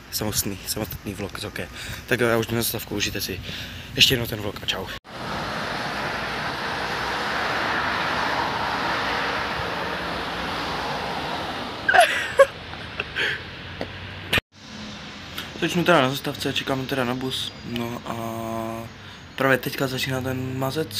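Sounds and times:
street noise: 0.0 - 20.9
cars driving past: 5.1 - 17.6.

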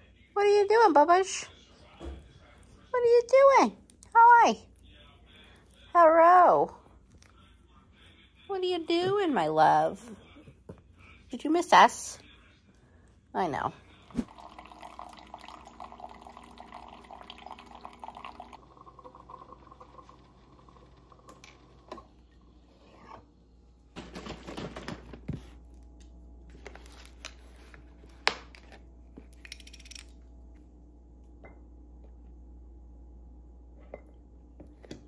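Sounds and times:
coffee maker hum and hiss: 14.2 - 23.3.

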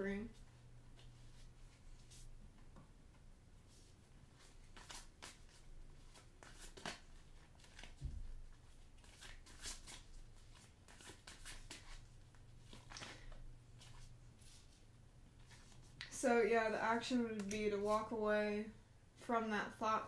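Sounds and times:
cards being shuffled: 4.4 - 14.8.

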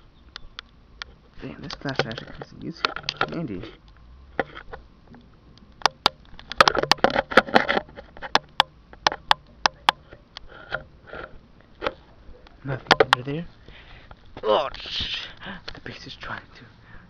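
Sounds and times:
sharp clicks: 0.2 - 7.4
camera handling noise: 0.4 - 13.2
rustling scrapes: 6.5 - 8.4, 10.0 - 16.0.

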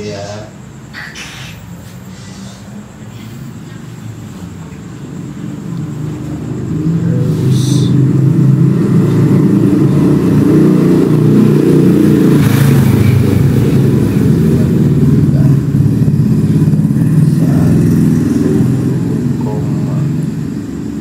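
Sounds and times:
engine running loudly: 5.4 - 21.0.

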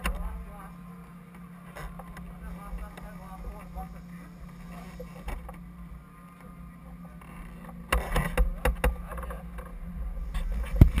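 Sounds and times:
steady low hum: 0.0 - 11.0
knocks and clicks of handling camera: 7.9 - 9.7.

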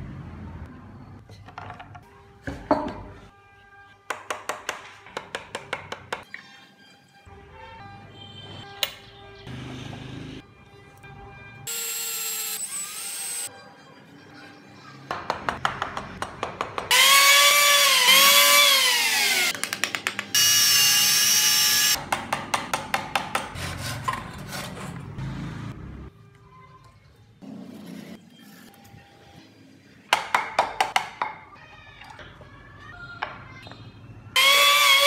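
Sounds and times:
background music: 2.0 - 12.2.

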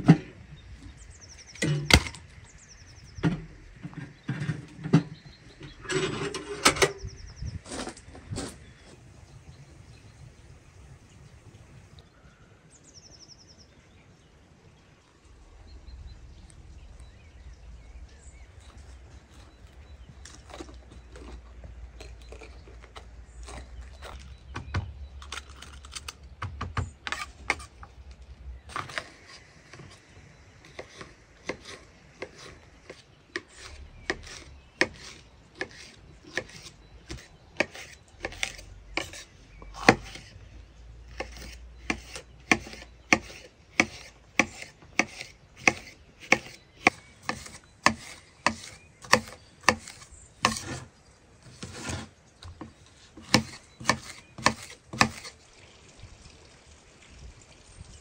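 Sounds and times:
knife slicing pepper on board: 30.7 - 40.3, 41.1 - 50.9, 53.2 - 55.3.

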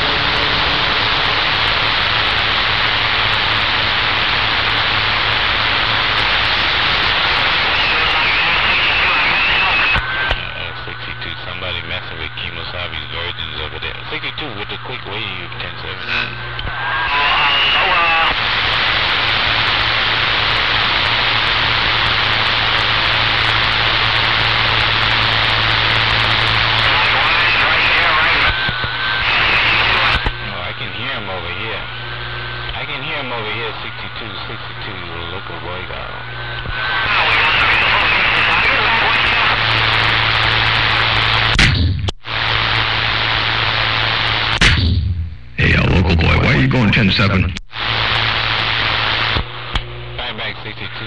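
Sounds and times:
low steady hum: 0.0 - 17.8
radio static hiss: 0.0 - 51.0.

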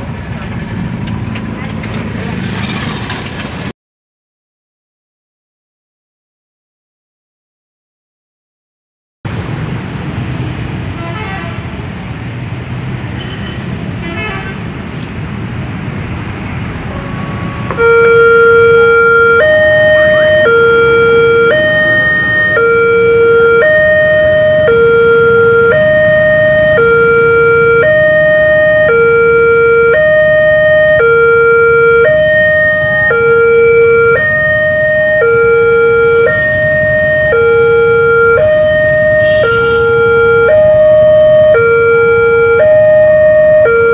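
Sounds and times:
motorcycle: 0.0 - 3.7, 9.3 - 43.7
road traffic: 0.0 - 3.7, 9.3 - 43.9
two-tone level crossing alarm: 17.6 - 43.9.

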